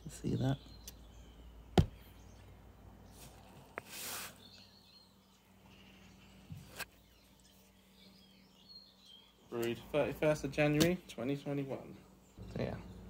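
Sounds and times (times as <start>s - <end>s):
birds chirping: 0.0s - 13.0s
handling knocks: 1.8s - 2.0s
short hiss: 3.8s - 4.5s.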